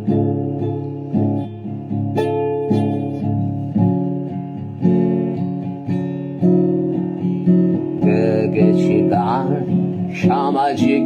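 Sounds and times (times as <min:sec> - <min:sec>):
acoustic guitar strummed slowly: 0:00.0 - 0:11.0.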